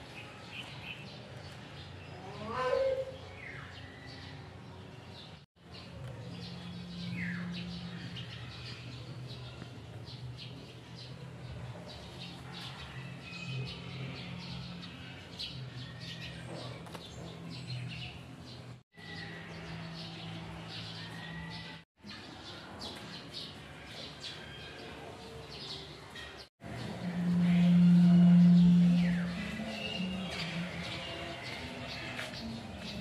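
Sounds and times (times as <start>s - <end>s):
steady low hum: 26.6s - 33.0s.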